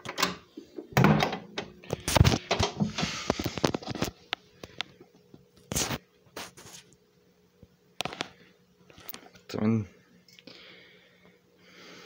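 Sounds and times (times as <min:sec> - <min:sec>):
metal cabinet door shutting: 0:01.0 - 0:01.6.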